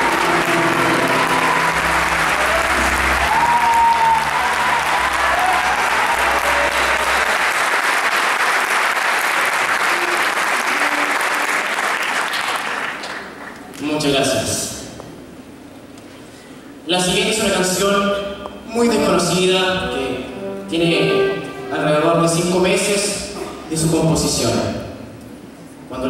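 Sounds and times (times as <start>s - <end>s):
band holding final notes: 0.0s - 7.6s, 9.5s - 11.8s, 18.8s - 22.8s
audience applauding: 0.0s - 13.9s.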